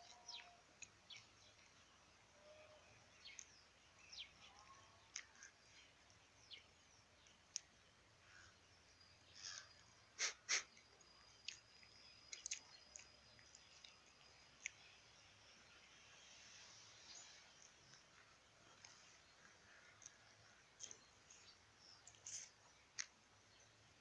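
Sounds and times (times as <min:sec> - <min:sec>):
short noisy puffs: 0:10.2 - 0:10.8.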